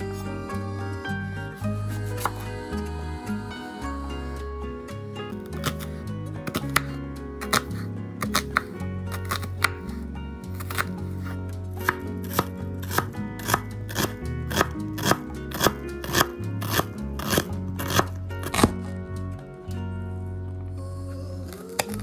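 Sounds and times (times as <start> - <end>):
knife slicing onion on cutting board: 10.6 - 10.9, 11.8 - 18.7.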